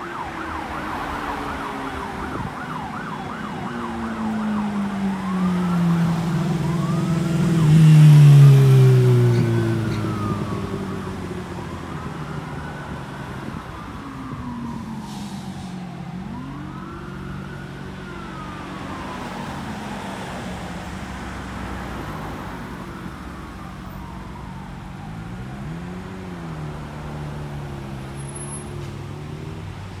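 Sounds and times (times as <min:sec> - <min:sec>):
police siren wailing: 0:00.0 - 0:30.0
traffic noise: 0:00.0 - 0:30.0.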